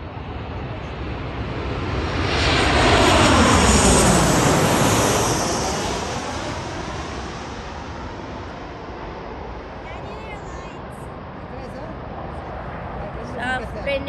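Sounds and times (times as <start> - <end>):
jet airliner passing overhead: 0.0 - 14.0.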